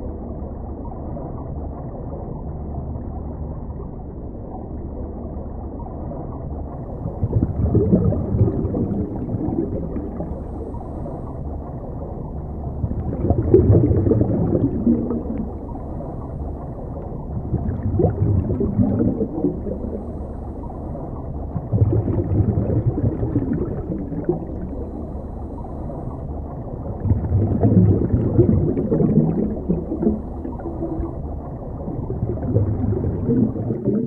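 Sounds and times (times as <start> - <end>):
low underwater rumble: 0.0 - 34.0
gurgling diver exhale bubbles: 7.0 - 11.6, 12.6 - 16.4, 17.2 - 26.2, 26.9 - 34.0.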